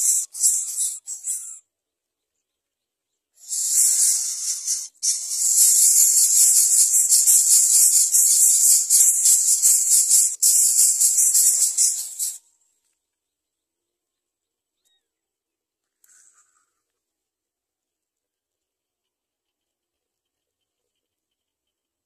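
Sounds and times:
nestlings begging with raspy hiss: 0.0s - 1.6s, 3.4s - 12.4s.

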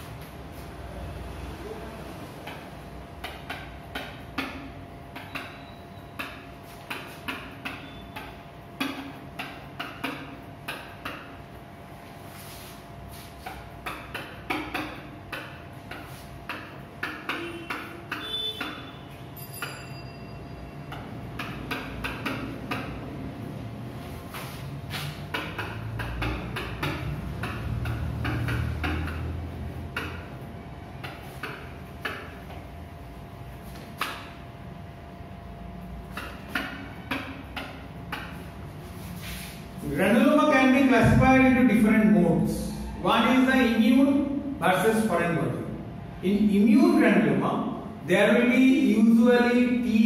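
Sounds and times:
marker writing on whiteboard: 2.3s - 19.8s, 20.8s - 34.7s, 35.8s - 45.4s
marker squeaks: 3.2s - 11.4s, 12.4s - 22.9s.

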